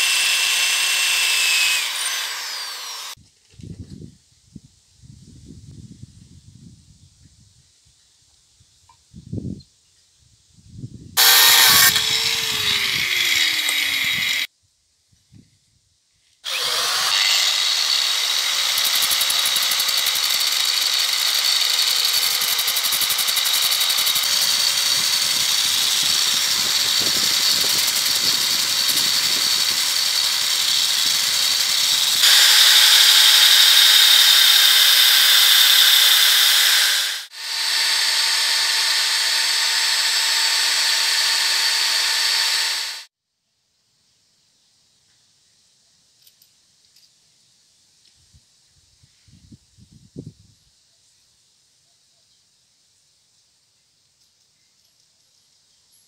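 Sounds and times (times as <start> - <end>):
electric drill motor hum: 0.0 - 3.2, 11.2 - 14.5, 16.5 - 43.1.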